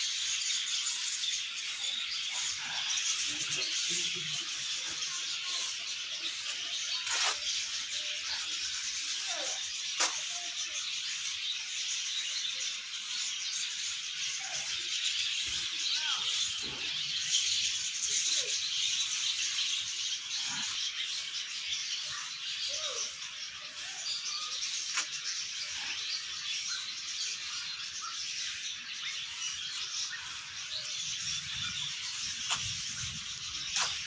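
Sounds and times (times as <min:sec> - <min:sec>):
small birds chirping: 0:00.0 - 0:34.0.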